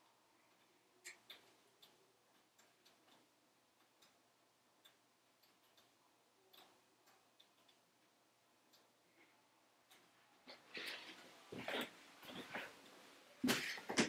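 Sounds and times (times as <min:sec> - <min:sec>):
wood fire crackling in stove: 0:00.0 - 0:14.0.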